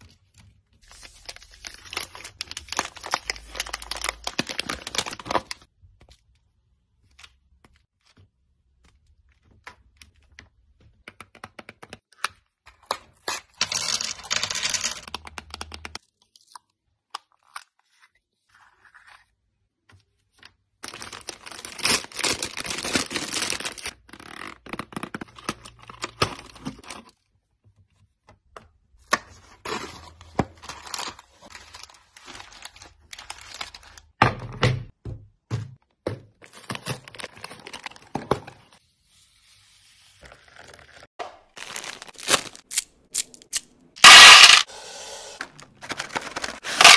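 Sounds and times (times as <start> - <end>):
wrappers crinkling: 41.5 - 42.9.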